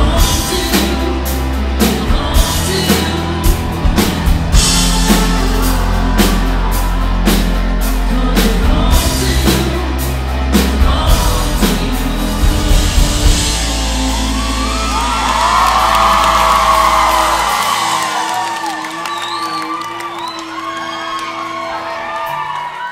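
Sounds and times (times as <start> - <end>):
live rock band: 0.0 - 22.9
person singing: 0.0 - 22.9
crowd whooping and cheering: 2.8 - 7.9, 13.6 - 22.9.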